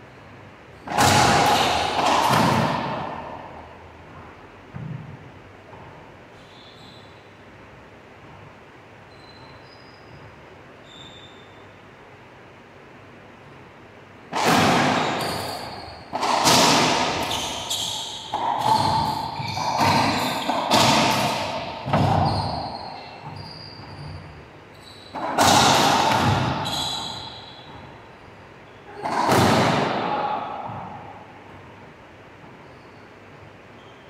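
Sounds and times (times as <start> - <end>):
racquetball hits echoing: 0.8 - 3.8, 14.3 - 24.4, 25.1 - 28.1, 28.9 - 32.6.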